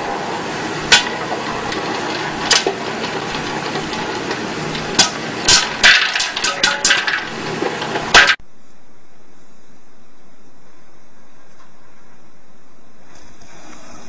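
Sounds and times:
popcorn machine hiss: 0.0s - 8.4s
popcorn kernels popping: 0.8s - 8.4s.

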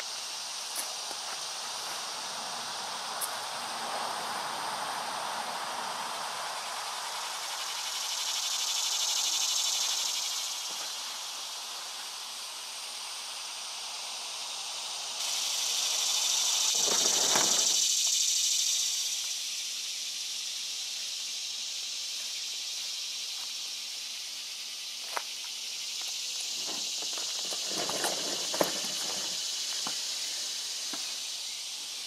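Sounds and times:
insects buzzing: 0.0s - 32.0s
brief rustle: 16.8s - 17.8s, 26.6s - 30.0s.

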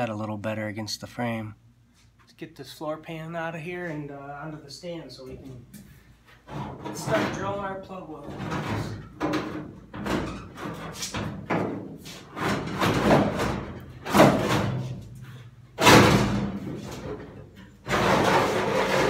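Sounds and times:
sheet metal knocks and rattles: 6.5s - 15.0s, 15.8s - 19.0s
metal bangs: 15.8s - 17.2s.

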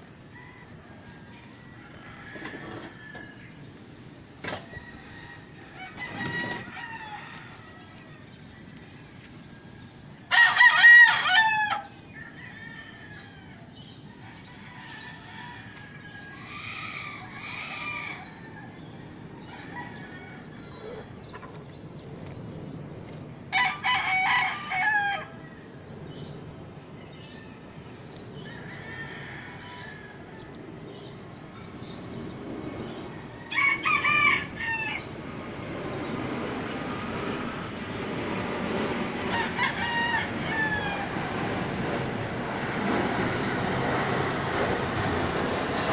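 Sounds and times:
faint rooster calls: 0.3s - 3.5s
rooster crowing: 0.3s - 3.6s, 4.6s - 8.2s, 10.3s - 21.1s, 23.5s - 25.4s, 28.4s - 30.5s, 33.1s - 35.2s, 39.3s - 41.4s.

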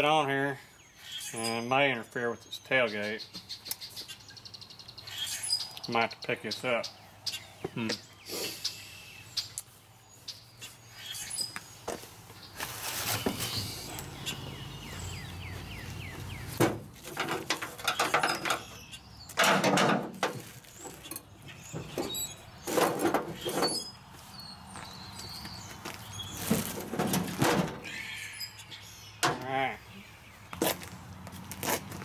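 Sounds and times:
birds chirping: 0.0s - 31.5s
knocks and scrapes on metal parts: 16.6s - 18.8s, 19.4s - 23.9s, 26.5s - 27.9s.

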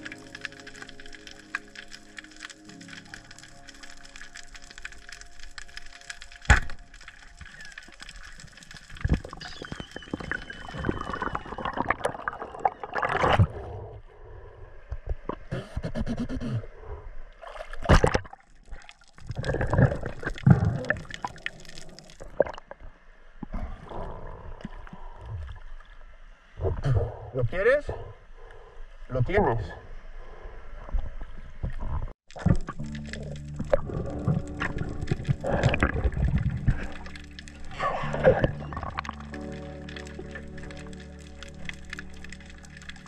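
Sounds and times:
water splashes: 0.0s - 13.7s, 17.4s - 23.0s, 31.6s - 43.0s
water gurgling and sloshing: 0.0s - 15.5s, 16.1s - 29.0s, 29.6s - 43.0s.

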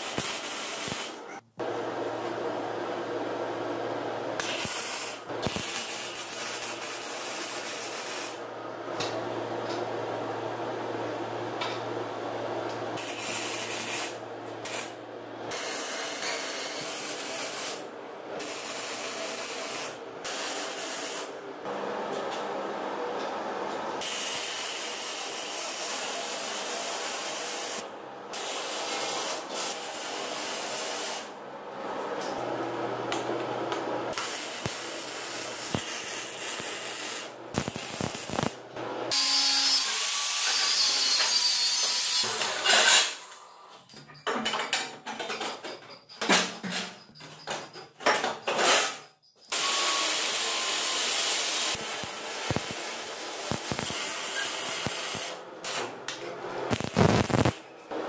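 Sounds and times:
arc welding crackling hiss: 0.0s - 1.3s, 4.4s - 8.4s, 13.0s - 17.8s, 18.4s - 21.3s, 24.0s - 31.3s, 34.1s - 41.9s, 49.5s - 55.9s, 56.7s - 57.6s.

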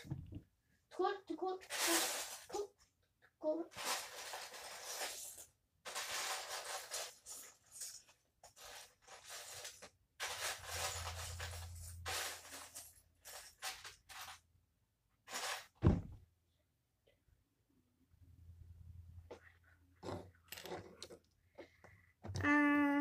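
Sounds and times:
heavy dull thump: 15.8s - 16.2s.

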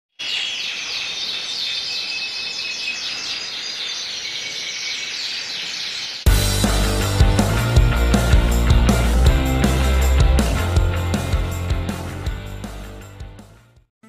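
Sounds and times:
canaries singing: 0.2s - 6.3s.

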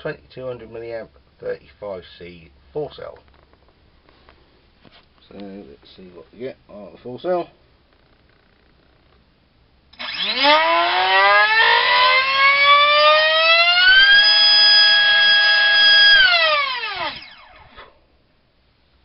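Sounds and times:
electric motor whine: 10.0s - 17.9s.

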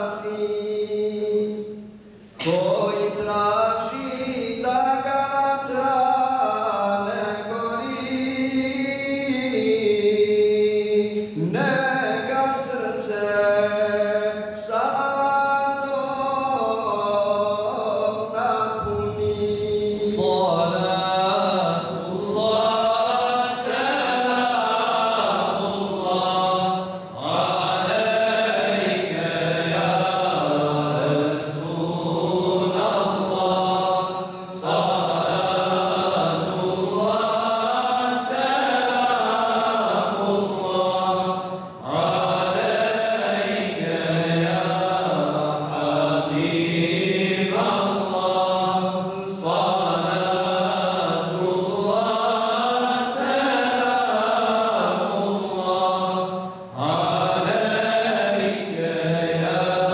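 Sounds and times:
men singing a hymn in unison: 0.0s - 59.9s.

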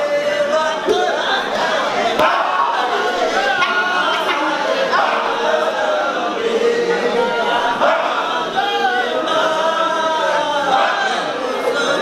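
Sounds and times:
men chanting together: 0.0s - 12.0s.

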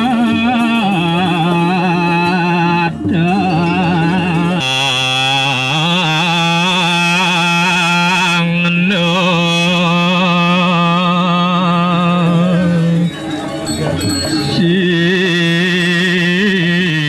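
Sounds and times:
person chanting: 0.0s - 17.0s
ringing high tones: 2.2s - 6.0s, 12.3s - 16.3s.

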